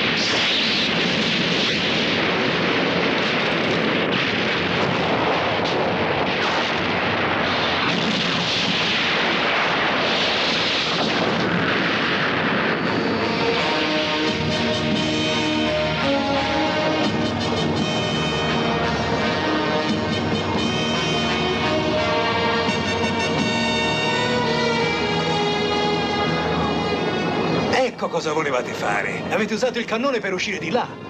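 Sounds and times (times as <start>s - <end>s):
cannon blast and explosion: 0.0s - 14.8s
music: 13.2s - 27.7s.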